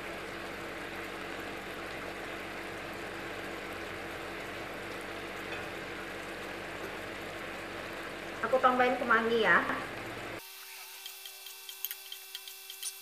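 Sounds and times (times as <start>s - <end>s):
sauce bubbling in a wok: 0.0s - 8.4s.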